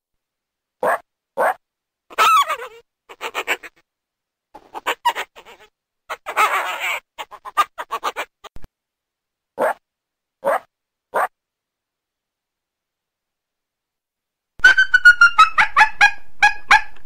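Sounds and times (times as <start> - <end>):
coyote chirps and yelps: 0.8 - 3.8, 4.6 - 8.6, 9.6 - 9.8, 10.4 - 11.3, 14.6 - 17.0.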